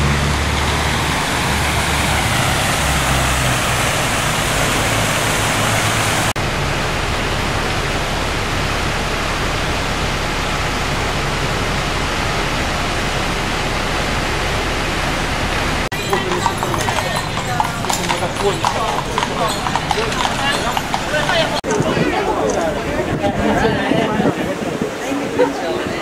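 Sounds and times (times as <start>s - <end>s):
water pouring over fountain cascade: 0.0s - 21.6s
low traffic rumble: 0.0s - 26.0s
water rushing: 0.0s - 26.0s.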